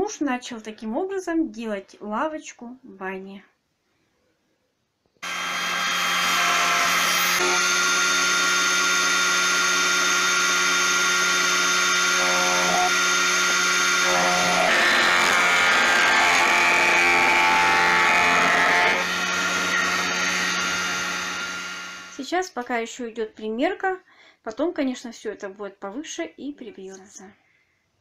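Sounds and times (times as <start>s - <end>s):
planer cutting wood: 5.2s - 22.2s
woodworking machine motor hum: 5.2s - 22.2s.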